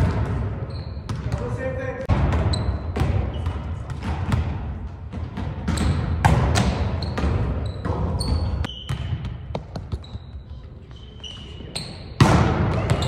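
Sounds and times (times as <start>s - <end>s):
volleyball slaps and thuds: 0.0s - 1.4s, 2.1s - 10.0s, 12.2s - 13.0s
sneaker squeaks: 0.0s - 1.7s, 2.3s - 4.0s, 5.3s - 13.0s.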